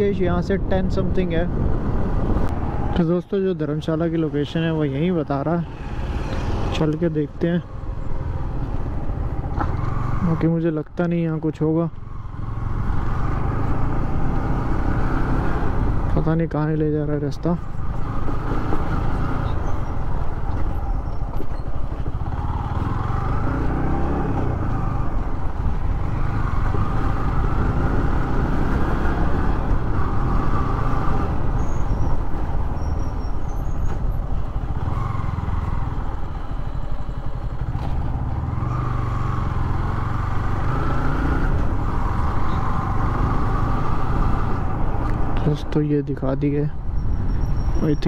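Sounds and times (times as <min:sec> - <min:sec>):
motorcycle engine running: 0:32.8 - 0:40.8.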